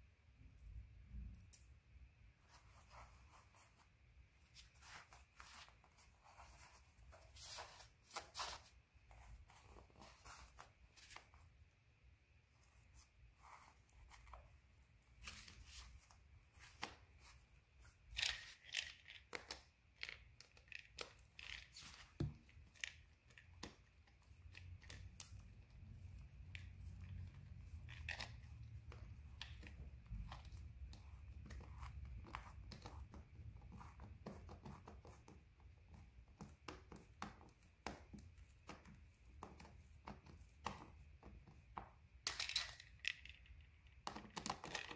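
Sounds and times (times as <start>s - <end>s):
satin fabric rustling: 2.4s - 11.6s.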